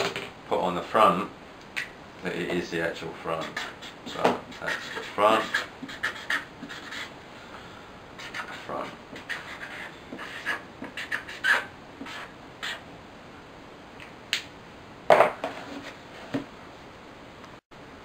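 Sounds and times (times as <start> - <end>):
marker pen scratching on cardboard: 3.4 - 7.1, 8.2 - 12.8.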